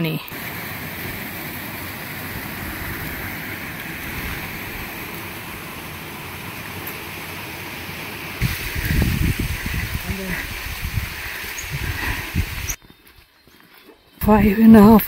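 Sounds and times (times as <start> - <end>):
mountain stream over waterfall: 0.3 - 12.8
low bumps: 8.4 - 12.8.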